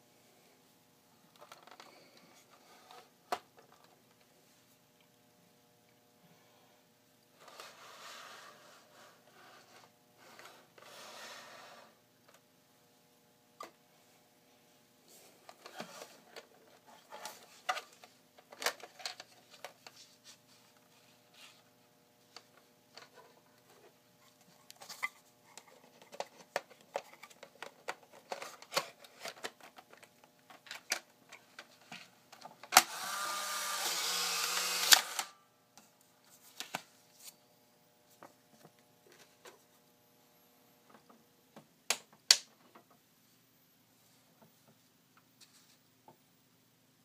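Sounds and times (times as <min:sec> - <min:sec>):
camera ejection motor whirring: 0:32.8 - 0:35.3
faint high whine of flash charging: 0:32.8 - 0:35.4
plastic camera clicks and snaps: 0:34.3 - 0:35.3.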